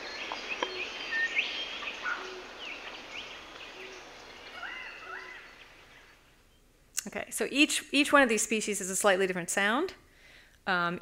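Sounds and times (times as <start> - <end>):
birds chirping and whistling: 0.0 - 6.6
steady hiss: 0.0 - 6.9.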